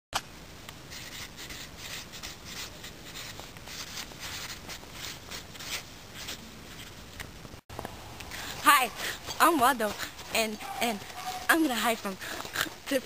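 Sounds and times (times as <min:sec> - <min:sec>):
marker writing on paper: 0:00.9 - 0:06.4.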